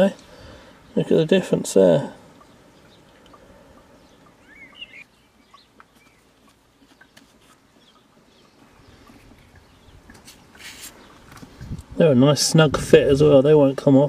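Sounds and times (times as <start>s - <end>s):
faint bird chirps: 2.2s - 10.0s.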